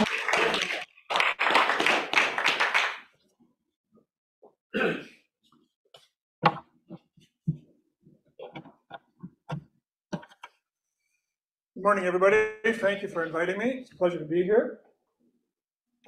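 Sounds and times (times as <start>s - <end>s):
small audience applauding: 0.0s - 3.2s.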